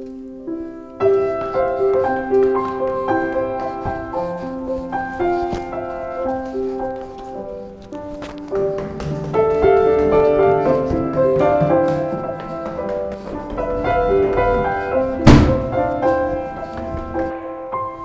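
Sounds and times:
instrumental background music: 0:00.0 - 0:18.0
heavy thump: 0:15.2 - 0:16.0.

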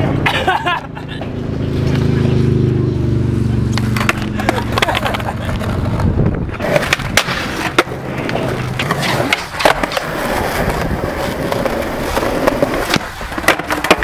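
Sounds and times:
skateboard wheels rolling: 0:00.0 - 0:14.0
skateboard clacks: 0:03.7 - 0:14.0.

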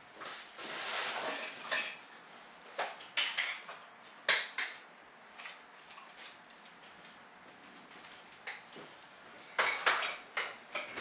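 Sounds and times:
kitchenware clinking and knocking: 0:01.3 - 0:02.0, 0:09.5 - 0:11.0.

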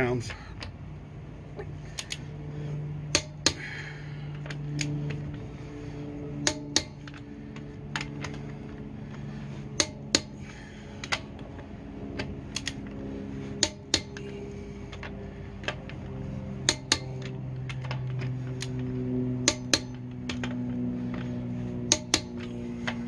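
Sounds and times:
steady low hum: 0:00.0 - 0:23.0
torque wrench clicking: 0:16.7 - 0:17.2, 0:19.4 - 0:20.6, 0:21.9 - 0:22.4.

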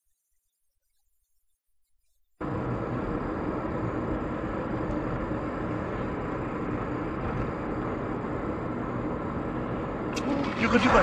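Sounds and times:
car driving on road: 0:02.4 - 0:11.0.

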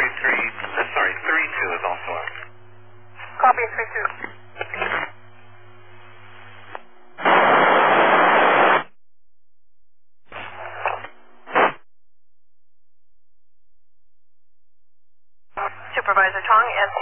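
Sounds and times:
garbled radio transmission: 0:00.0 - 0:02.5, 0:03.2 - 0:05.2, 0:15.5 - 0:17.0
mains hum: 0:00.0 - 0:09.0, 0:12.8 - 0:17.0
radio static burst: 0:07.2 - 0:09.0, 0:10.3 - 0:11.8.

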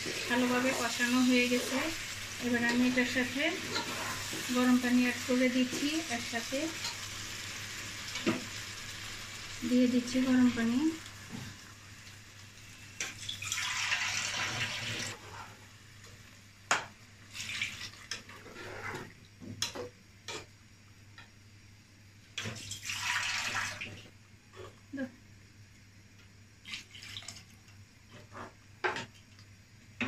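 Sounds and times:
liquid sloshing and splashing: 0:26.6 - 0:27.5.

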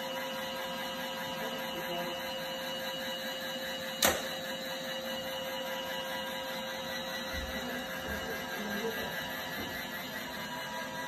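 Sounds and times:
robot vacuum humming: 0:00.0 - 0:11.0
sharp click: 0:04.0 - 0:04.3.

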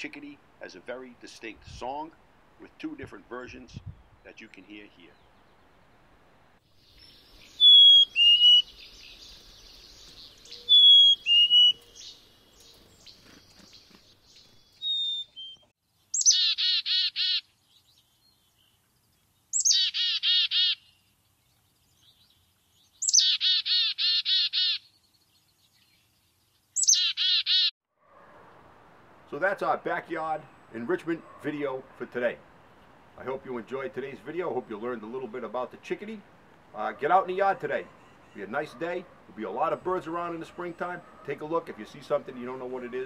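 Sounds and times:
chickadee buzzy calls: 0:07.1 - 0:12.2, 0:14.8 - 0:17.4, 0:19.6 - 0:20.9, 0:23.0 - 0:24.9, 0:26.8 - 0:27.7
chickadee whistled song: 0:07.4 - 0:08.8, 0:10.5 - 0:12.0, 0:14.8 - 0:16.5.

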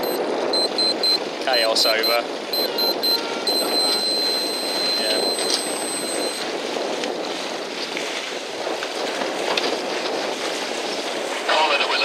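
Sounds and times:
high-pitched electronic tone: 0:00.0 - 0:01.2, 0:02.0 - 0:06.4
sea water splashing: 0:00.0 - 0:09.1
wind: 0:00.0 - 0:12.0.

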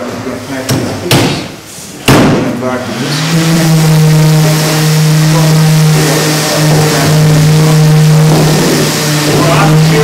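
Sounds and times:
motor humming: 0:02.8 - 0:10.0.

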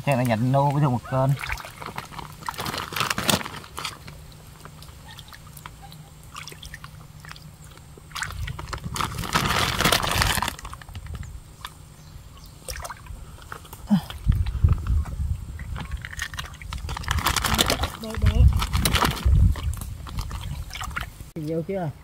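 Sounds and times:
water sloshing and splashing: 0:00.0 - 0:21.3.

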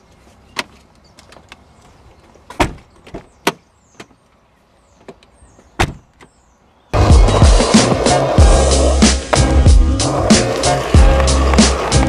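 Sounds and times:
car door knocks and clunks: 0:05.8 - 0:06.1
car door slamming: 0:05.8 - 0:06.1.

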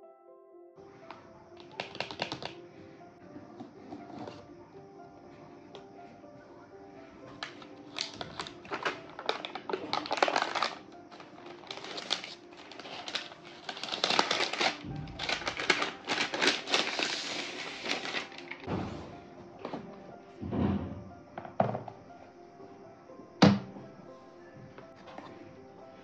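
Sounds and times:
faint background music: 0:00.0 - 0:26.0
cardboard and paper rustling: 0:03.5 - 0:04.4, 0:07.3 - 0:18.7.

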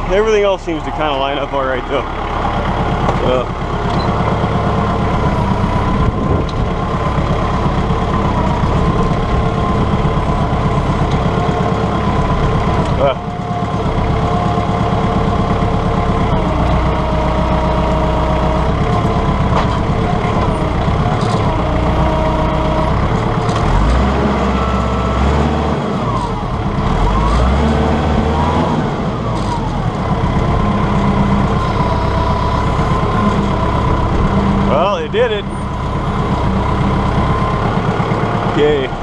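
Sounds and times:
tractor engine running: 0:00.0 - 0:39.0
hydraulic whine: 0:16.0 - 0:25.5, 0:30.6 - 0:33.9.

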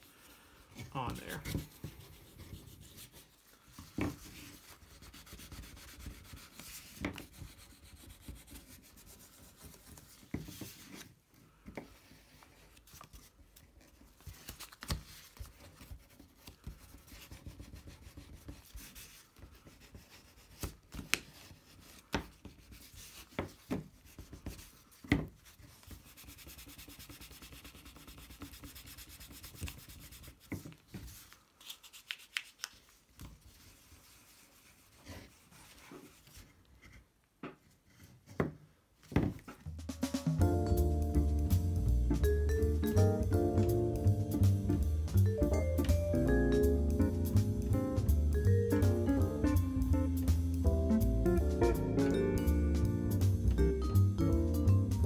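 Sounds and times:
dry scratchy rubbing: 0:00.0 - 0:11.2, 0:14.3 - 0:37.0.

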